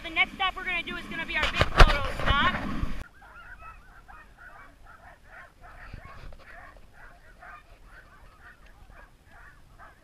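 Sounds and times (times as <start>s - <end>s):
sled dogs yipping and whining: 3.0s - 10.0s.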